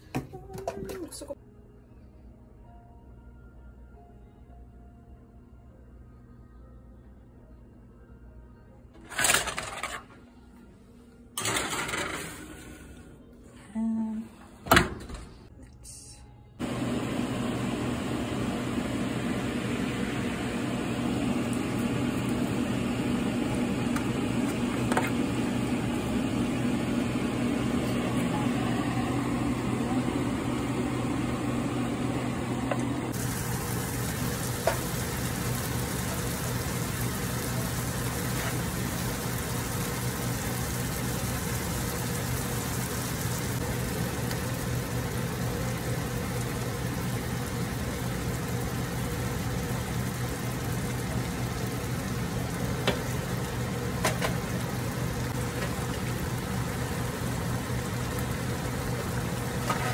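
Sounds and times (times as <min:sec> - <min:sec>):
low steady hum: 0:15.4 - 0:59.9
tomatoes sizzling in a saucepan: 0:33.1 - 0:59.9.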